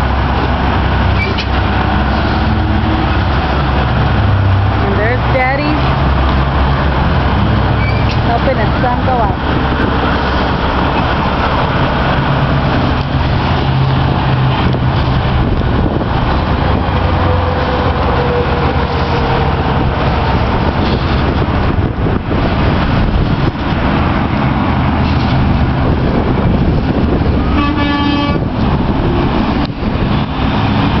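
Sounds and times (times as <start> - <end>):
truck diesel engine running: 0.0 - 31.0
truck horn blast: 27.4 - 28.5.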